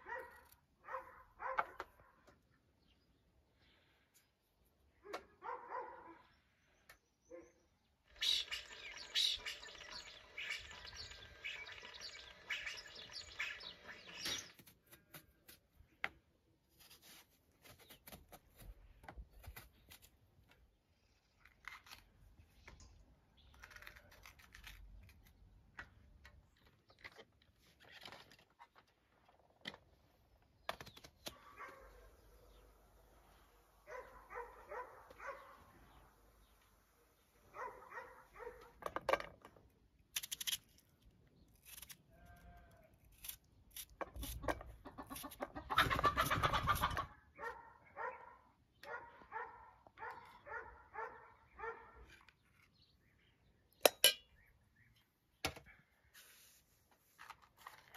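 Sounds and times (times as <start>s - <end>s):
birds chirping: 6.2s - 14.6s
knife peeling eggplant: 21.2s - 22.2s, 23.5s - 25.4s, 40.1s - 40.8s, 41.4s - 45.5s.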